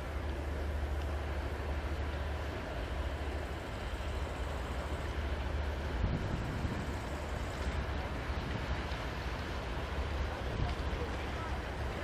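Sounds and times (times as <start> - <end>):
steady low rumble: 0.0 - 12.0
wind on microphone: 5.9 - 8.8.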